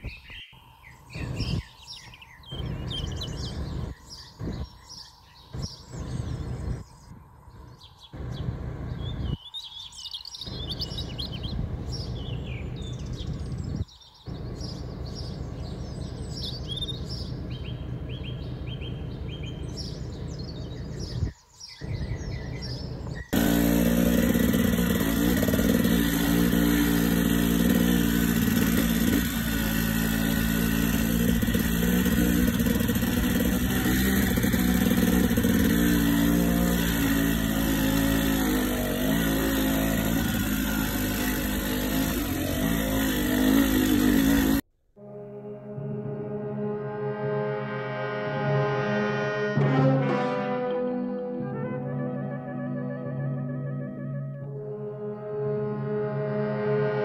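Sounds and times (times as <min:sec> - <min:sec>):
small birds chirping: 0:00.0 - 0:44.6
dirt bike engine running: 0:01.2 - 0:01.7, 0:02.4 - 0:09.4, 0:10.5 - 0:44.6.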